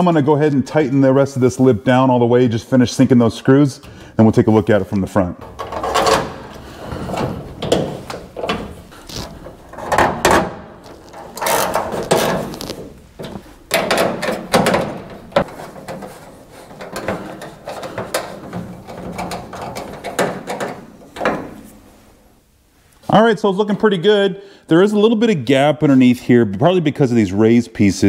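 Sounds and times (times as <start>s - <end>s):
screwdriver creaking turns: 5.5s - 14.6s.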